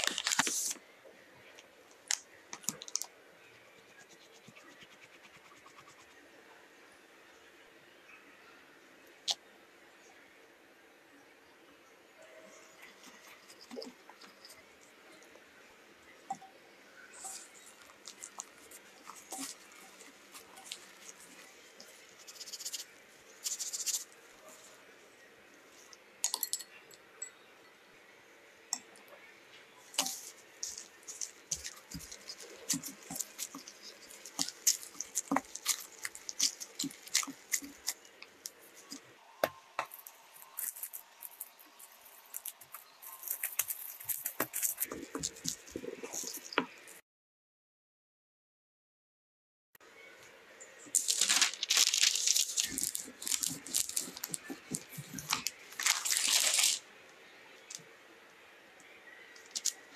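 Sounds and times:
hands kneading dough: 17.1 - 24.8, 29.9 - 47.0, 50.9 - 56.8.

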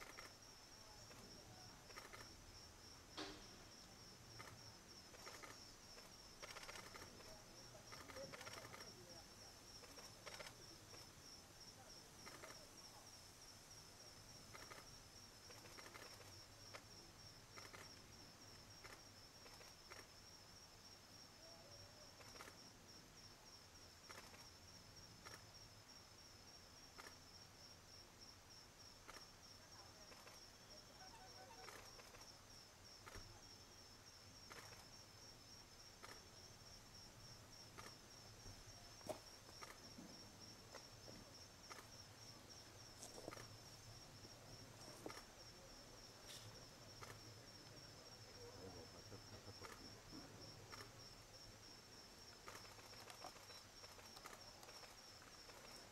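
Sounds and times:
faint clicks: 0.0 - 0.4, 1.9 - 2.3, 3.2 - 8.9, 9.8 - 11.1, 12.2 - 12.6, 15.5 - 16.9, 17.6 - 18.1, 18.8 - 20.1, 22.2 - 22.6, 24.1 - 24.5, 27.0 - 27.2, 31.4 - 32.3, 34.5 - 34.9, 36.0 - 36.3, 37.8 - 38.0, 39.0 - 40.1, 40.7 - 42.0, 43.0 - 43.6, 44.2 - 45.3, 46.2 - 47.8, 48.4 - 50.9, 52.3 - 55.9
high-pitched insect trill: 29.1 - 45.8.

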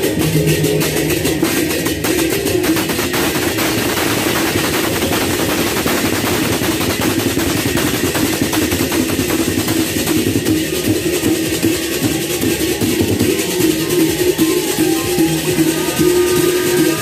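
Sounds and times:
rapid drumming: 0.0 - 17.0
gamelan music: 9.1 - 17.0.

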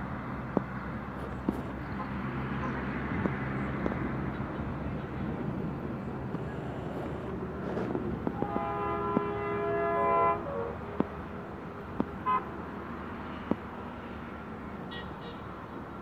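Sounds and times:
steady outdoor rumble: 0.0 - 16.0
distant diesel locomotive horn: 8.3 - 10.9.

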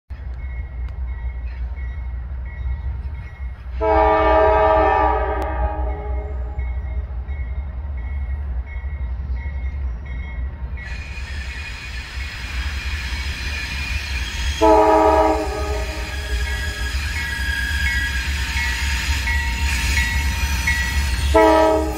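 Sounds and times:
deep train rumble: 0.1 - 21.9
train rolling on rails: 0.1 - 21.9
train air horn chord: 3.8 - 6.6, 14.6 - 16.7, 21.3 - 21.9.

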